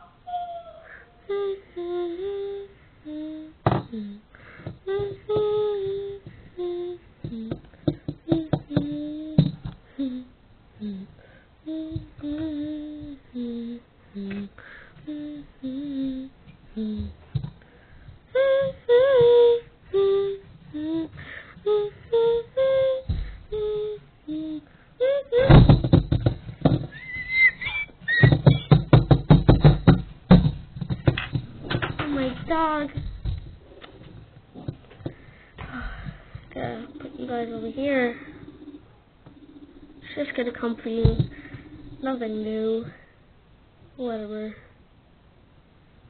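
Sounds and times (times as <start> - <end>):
child humming wordlessly: 0.0 - 17.2, 18.3 - 26.0, 35.7 - 43.0
sharp taps and knocks: 25.4 - 36.5.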